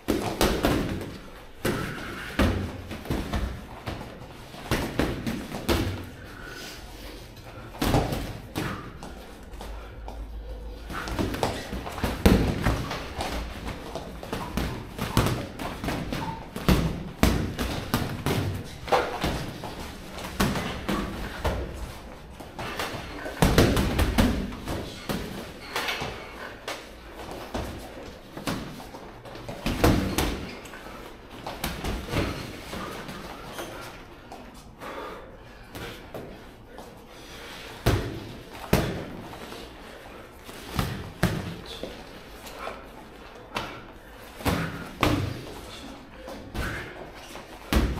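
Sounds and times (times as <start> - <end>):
boxing gloves thudding: 0.0 - 6.2, 7.7 - 9.2, 10.9 - 26.3, 27.2 - 30.6, 31.4 - 33.3, 37.8 - 39.3, 44.4 - 45.5, 47.6 - 47.9.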